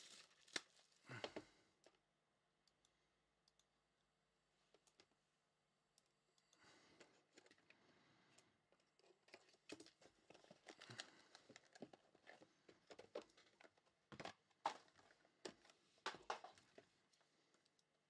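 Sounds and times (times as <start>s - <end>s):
plastic shrink wrap crinkling and tearing: 0.0s - 1.2s, 9.3s - 12.4s.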